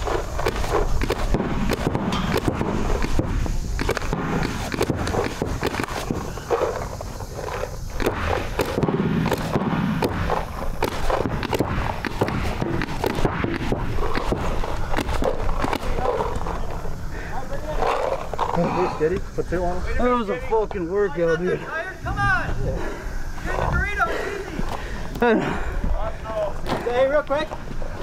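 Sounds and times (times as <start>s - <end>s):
paintball markers firing: 0.0s - 16.8s.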